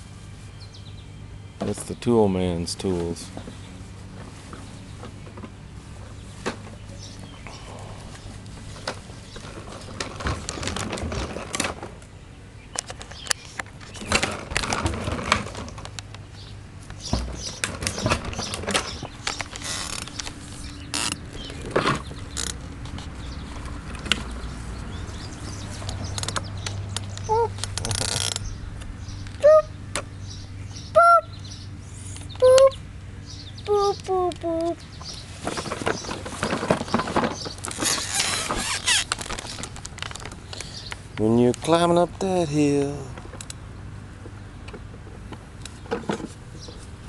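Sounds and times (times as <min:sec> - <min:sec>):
plastic tricycle knocks and clicks: 0:08.7 - 0:12.0, 0:14.0 - 0:16.0, 0:16.9 - 0:20.3, 0:21.0 - 0:23.0, 0:35.1 - 0:40.4, 0:45.9 - 0:46.8.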